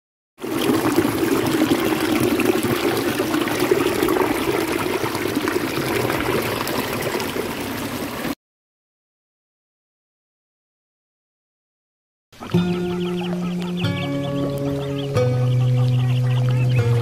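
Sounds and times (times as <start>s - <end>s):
river water pouring over rocks: 0.4s - 8.4s.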